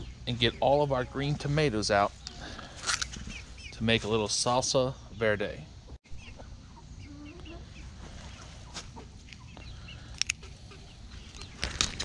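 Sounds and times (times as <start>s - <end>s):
chickens clucking softly: 0.0s - 2.4s, 6.1s - 11.5s.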